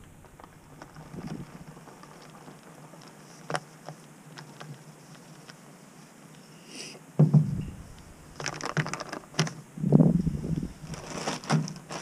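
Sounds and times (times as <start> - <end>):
foil pouch crinkling: 0.0 - 5.6, 7.8 - 9.6, 10.2 - 12.0.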